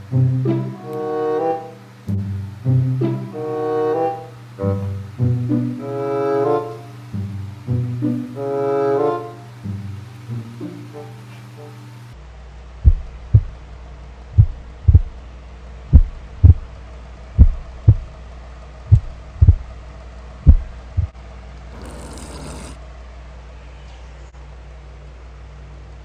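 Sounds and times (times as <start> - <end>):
heartbeat thumps: 12.8 - 13.6, 14.3 - 15.2, 15.9 - 16.7, 17.3 - 18.2, 18.9 - 19.7, 20.4 - 21.2.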